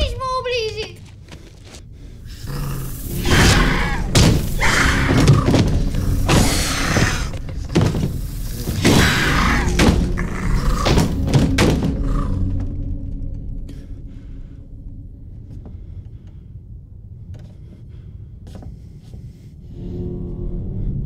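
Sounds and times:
tense film music: 0.0 - 21.0
heavy thuds and crashes: 3.1 - 12.5.

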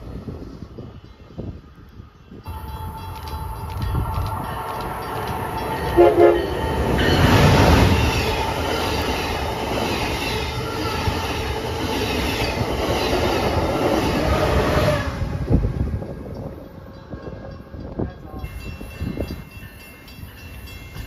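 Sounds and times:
train passing with rush of wheels: 0.0 - 21.0
train horn blasts: 2.5 - 7.8.

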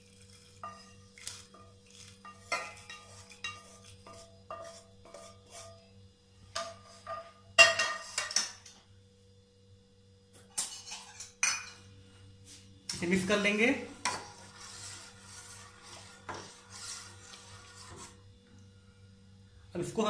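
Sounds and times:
spatula scraping a frying pan: 0.0 - 5.9, 13.9 - 18.2.

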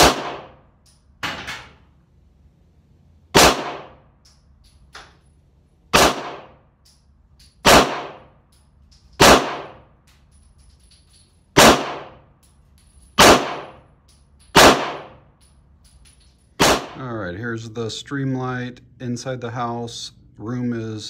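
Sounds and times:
pistol shots: 0.0 - 1.4, 3.3 - 4.1, 5.9 - 6.7, 7.6 - 8.4, 9.2 - 9.9, 11.6 - 12.2, 13.2 - 13.8, 14.5 - 15.2, 16.6 - 17.0.

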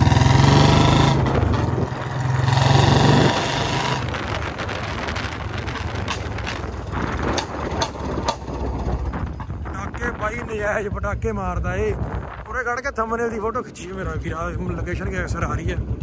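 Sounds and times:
motorcycle engine under throttle: 0.0 - 9.4
road and wind noise: 0.0 - 16.0
sharp exhaust pops: 3.2 - 9.7.

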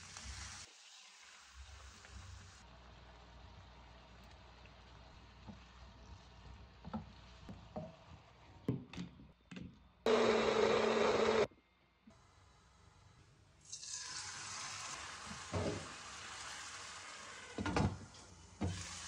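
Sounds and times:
faint sizzling in a pan: 0.0 - 8.5, 12.2 - 19.0
electric blender running: 10.1 - 11.5.

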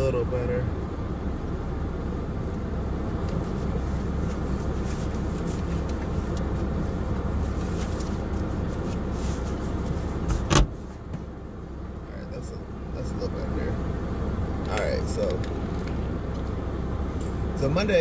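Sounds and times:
car cabin rumble: 0.0 - 18.0
sun visor rustling and clicking: 3.2 - 11.4, 14.6 - 16.6.

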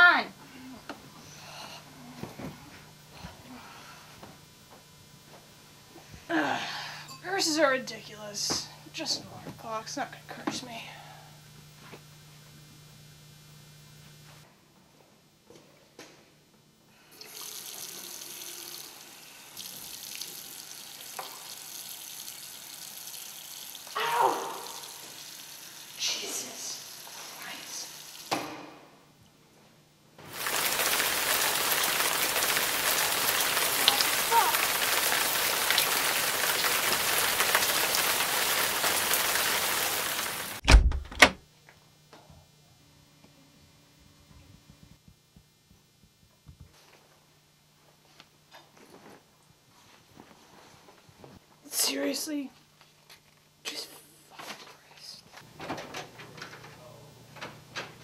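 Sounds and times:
sink faucet turned on: 17.2 - 19.0, 19.6 - 23.9
water running into basin: 17.2 - 28.3, 30.3 - 40.6
rain pattering: 30.3 - 40.6.

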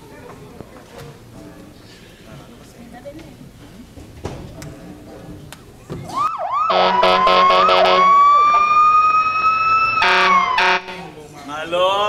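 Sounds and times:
electronic siren-like phone ringtone: 6.3 - 11.0.

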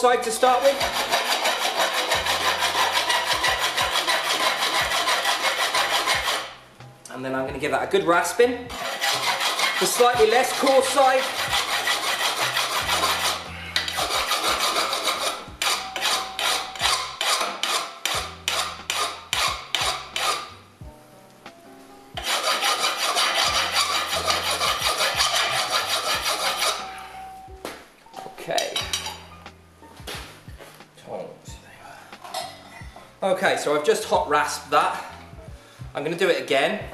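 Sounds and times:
rasp filing steel blade: 0.3 - 6.6, 8.7 - 20.6, 22.2 - 27.2.

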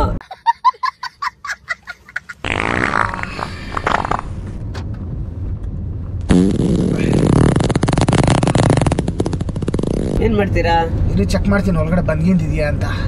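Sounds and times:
fart sounds: 2.4 - 4.6, 6.3 - 10.2.

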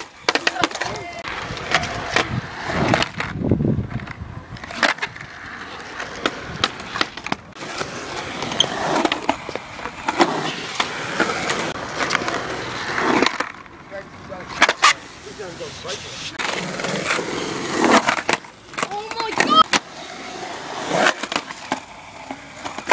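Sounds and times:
skateboard clacks: 0.0 - 13.8, 15.9 - 20.0
skateboard wheels rumbling on concrete: 0.0 - 22.9.

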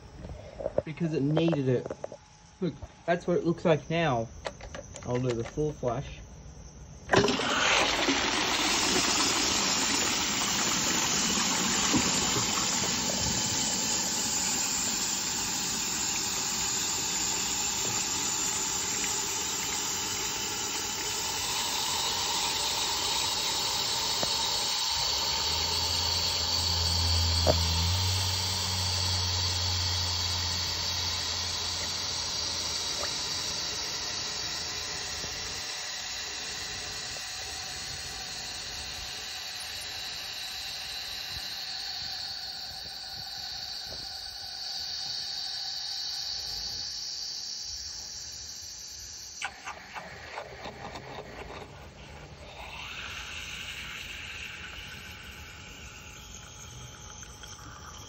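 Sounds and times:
toilet flushing: 7.1 - 43.8, 49.4 - 58.0
water rushing: 7.2 - 36.4
low hum: 7.2 - 44.7
faint high whistle: 8.6 - 58.0.

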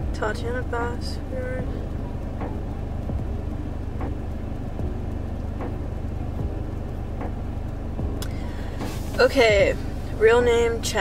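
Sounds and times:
car engine hum inside cabin: 0.0 - 11.0
faint ticks: 0.4 - 9.0.

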